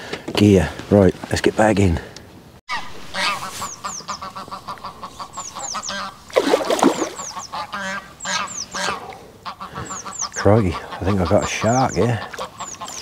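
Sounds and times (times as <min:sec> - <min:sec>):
small birds chirping: 0:02.2 - 0:13.0
waterfowl honking: 0:02.7 - 0:13.0.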